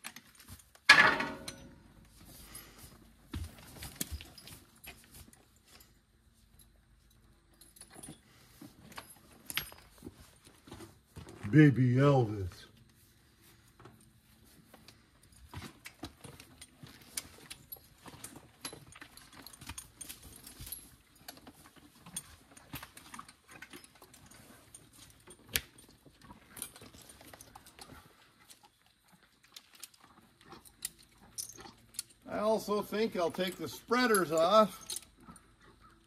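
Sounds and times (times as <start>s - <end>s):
metal harness clinking: 0.1s - 1.9s, 29.6s - 35.9s.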